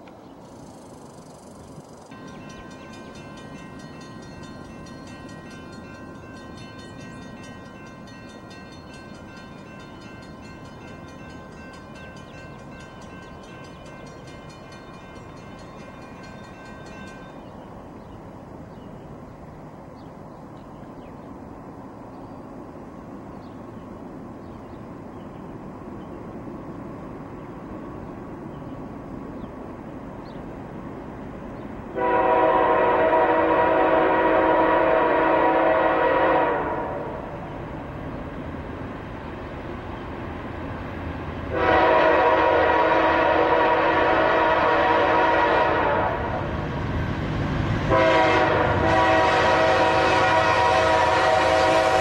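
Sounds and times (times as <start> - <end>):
diesel train rumble: 0.0 - 52.0
crossing bell ringing: 2.1 - 17.6.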